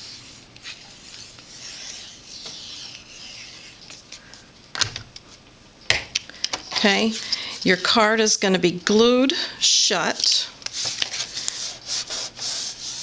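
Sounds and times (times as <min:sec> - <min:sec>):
glue applicator rubbing on cardstock: 0:00.0 - 0:03.9.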